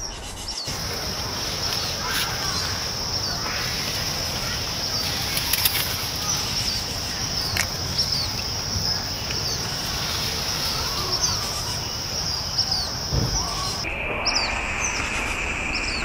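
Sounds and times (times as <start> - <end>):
small birds chirping: 0.0 - 16.0
steady high-pitched drone: 0.7 - 16.0
sharp clicks: 5.0 - 8.5.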